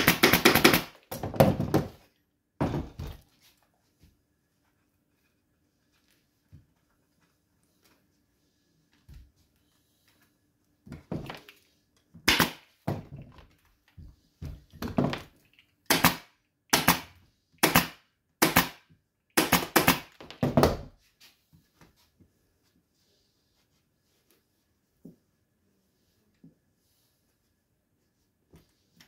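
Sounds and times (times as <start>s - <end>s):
pneumatic staple gun firing: 15.9s - 18.8s, 19.4s - 20.1s.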